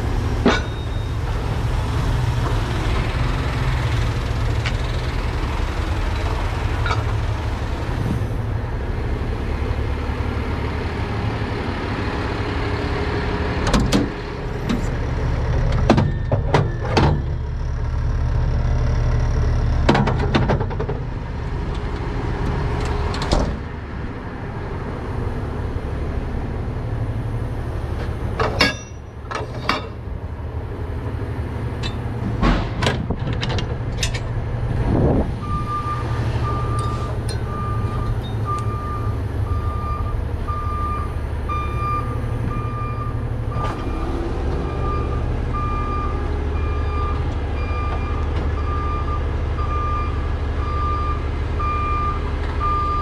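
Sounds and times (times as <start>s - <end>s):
truck engine idling: 0.0s - 20.3s, 20.9s - 53.0s
metal clanks and knocks: 0.4s - 1.1s, 6.1s - 7.2s, 13.6s - 17.4s, 19.8s - 21.1s, 28.0s - 30.1s, 31.8s - 34.4s.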